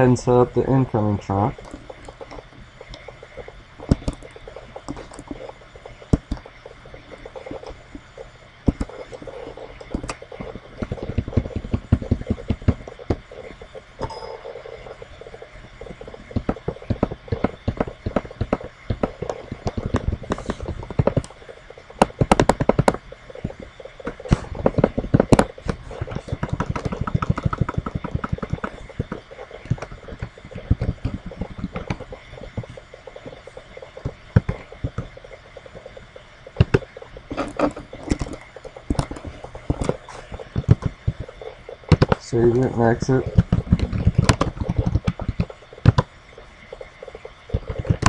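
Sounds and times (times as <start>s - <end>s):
computer keyboard clicking: 22.0s - 32.7s, 43.4s - 46.1s.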